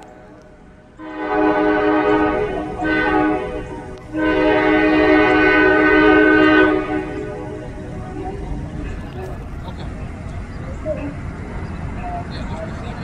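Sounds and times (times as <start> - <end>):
locomotive air horn: 0.0 - 9.0.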